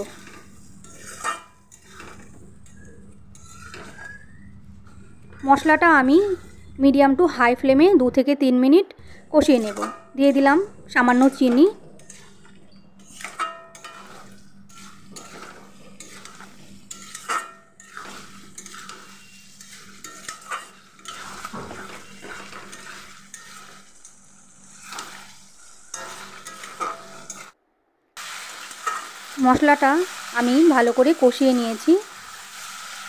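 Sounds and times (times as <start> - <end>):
spatula scraping pan: 0.0 - 6.8, 9.0 - 27.6, 28.7 - 29.4
continuous sizzle: 0.0 - 8.2, 9.0 - 27.6, 28.2 - 33.0.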